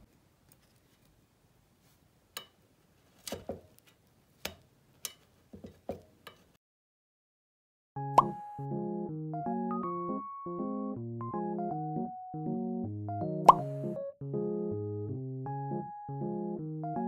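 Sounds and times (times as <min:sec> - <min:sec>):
metal tongs clicking on a pan: 0:04.4 - 0:05.2.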